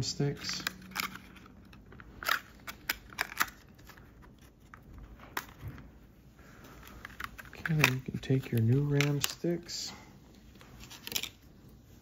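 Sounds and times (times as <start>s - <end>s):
plastic packaging clicks and crinkles: 0.3s - 5.9s, 6.6s - 9.6s, 10.6s - 11.5s.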